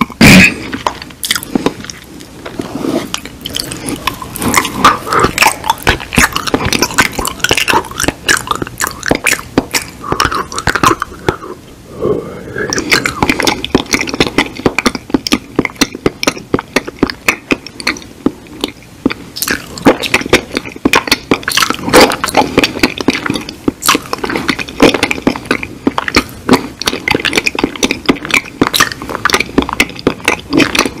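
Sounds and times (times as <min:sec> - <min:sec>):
wet lip smacks and tongue clicks: 0:12.8 - 0:31.0.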